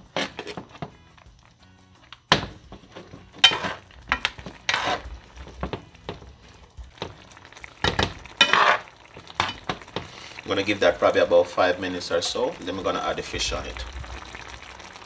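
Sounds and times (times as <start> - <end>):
metal spoon scraping a frying pan: 0.0 - 0.8, 2.8 - 5.8, 7.9 - 10.2
sauce simmering with light sizzle: 0.1 - 15.0.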